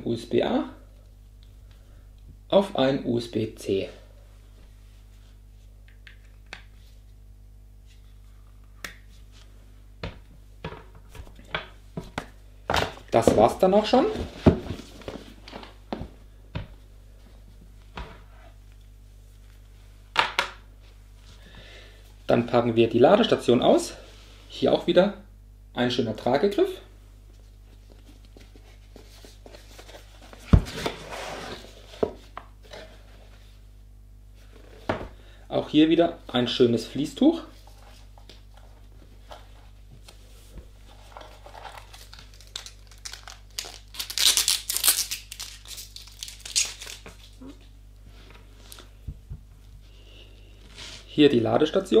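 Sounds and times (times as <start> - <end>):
cardboard scraping and rustling: 28.7 - 33.4.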